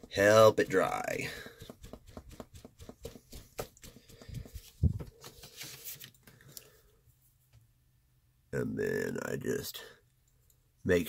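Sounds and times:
paper menu flapping: 0:00.7 - 0:06.2.

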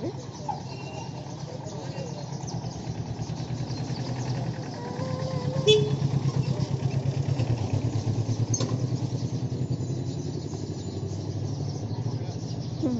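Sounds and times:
motorcycle engine running low revs: 0:00.0 - 0:12.9.

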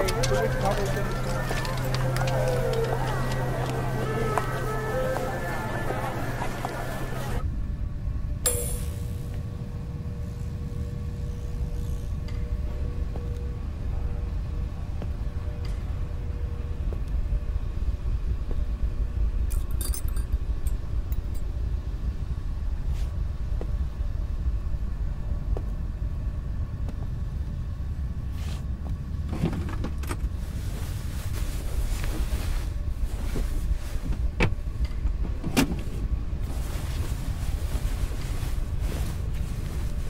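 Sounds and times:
steady low rumble: 0:00.0 - 0:40.0
light metallic jingle: 0:19.5 - 0:21.5
soft rustling: 0:36.4 - 0:40.0.

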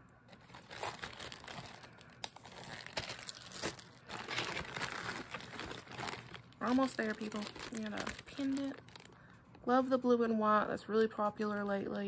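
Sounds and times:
plastic bags crinkling: 0:00.3 - 0:09.6.

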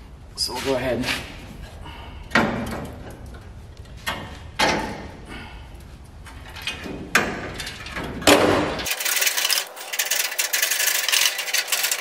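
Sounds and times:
metal clanks and scrapes: 0:06.3 - 0:12.0.

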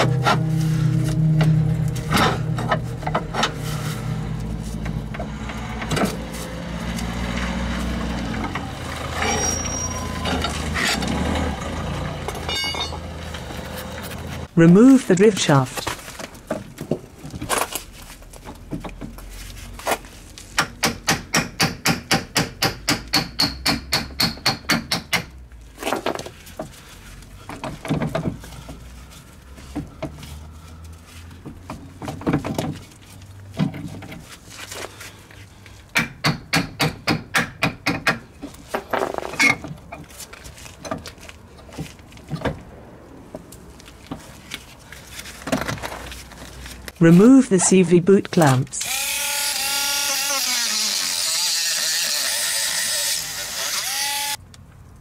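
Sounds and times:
sharp metal knocks: 0:20.6 - 0:25.4, 0:35.9 - 0:38.3.

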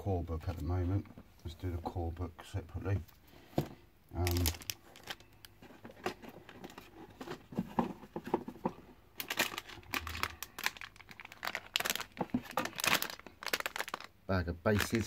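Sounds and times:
packaging rustling: 0:04.2 - 0:14.1, 0:14.7 - 0:15.0.

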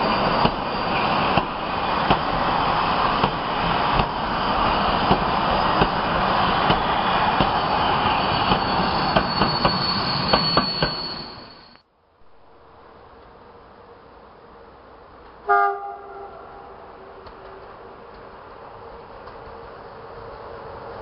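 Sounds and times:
train wheels rumbling on rail: 0:00.0 - 0:11.6, 0:13.0 - 0:21.0
high wheel squeal: 0:00.0 - 0:11.8.

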